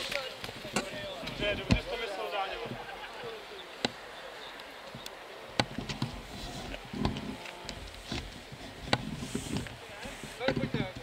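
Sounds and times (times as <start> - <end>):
distant shouts: 0.8 - 7.8.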